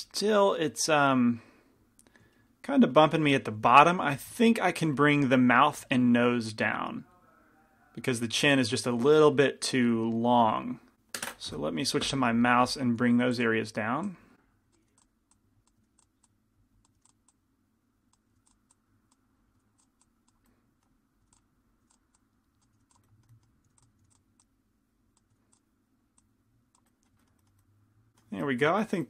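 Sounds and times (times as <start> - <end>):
low room hum: 0.0 - 29.0
computer keyboard and mouse clicking: 14.7 - 17.4, 18.1 - 24.5, 25.1 - 28.3.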